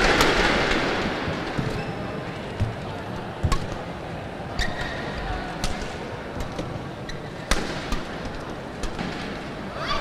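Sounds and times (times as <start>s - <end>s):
rackets hitting shuttlecock: 0.0s - 1.0s, 3.4s - 4.0s, 4.6s - 9.5s
hall background noise: 0.0s - 10.0s
shoe soles squeaking on court: 1.5s - 5.3s, 6.4s - 8.7s.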